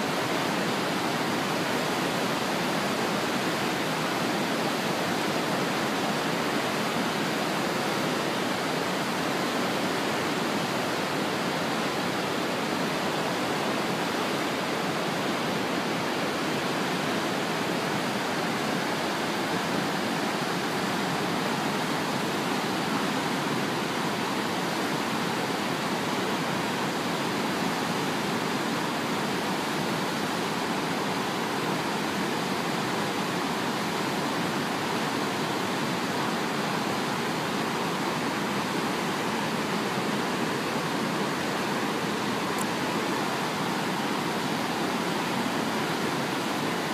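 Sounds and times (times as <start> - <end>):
waterfall and rapids rushing: 0.0 - 46.9.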